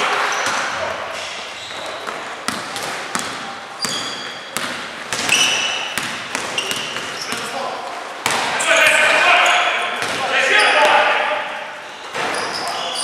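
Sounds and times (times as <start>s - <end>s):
sneakers squeaking: 0.0s - 13.0s
basketball bouncing on gym floor: 0.3s - 7.5s, 8.2s - 8.6s, 10.0s - 10.3s.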